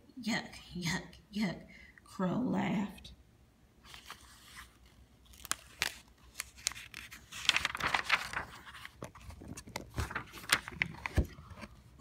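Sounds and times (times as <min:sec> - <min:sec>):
paper pages rustling: 0:03.8 - 0:12.0.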